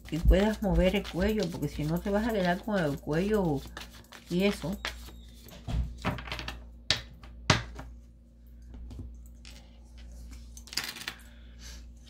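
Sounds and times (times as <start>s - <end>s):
cards rustling: 0.1s - 5.5s.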